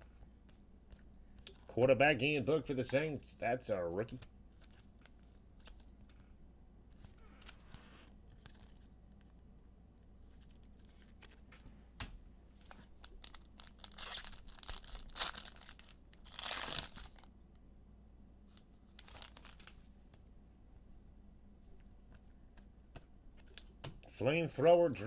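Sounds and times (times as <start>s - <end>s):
foil wrappers crinkling and ripping: 12.6s - 17.3s, 18.5s - 19.8s.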